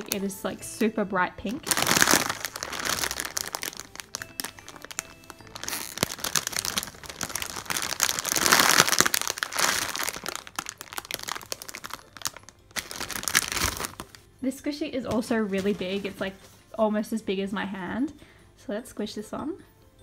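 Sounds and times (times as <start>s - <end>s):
plastic bag crinkling: 0.0s - 0.5s, 1.4s - 14.3s, 15.1s - 16.4s
faint background music: 0.0s - 20.0s.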